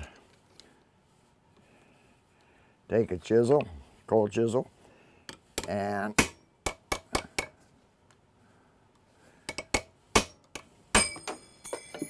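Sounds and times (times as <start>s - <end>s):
hammer striking metal chisel: 5.6s - 7.6s, 9.5s - 12.0s
high metallic ringing: 10.9s - 12.0s.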